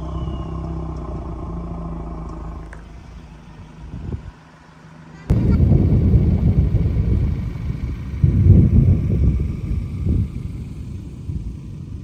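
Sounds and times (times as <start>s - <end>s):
vehicle engine running: 0.0s - 12.0s
loud noisy rumble: 5.3s - 12.0s.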